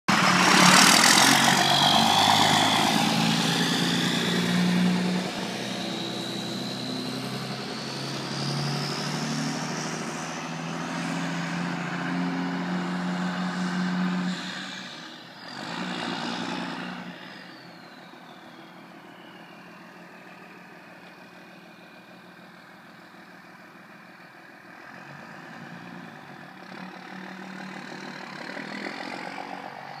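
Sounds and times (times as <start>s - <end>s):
high engine whine: 0.1s - 30.0s
truck engine driving off: 0.1s - 30.0s.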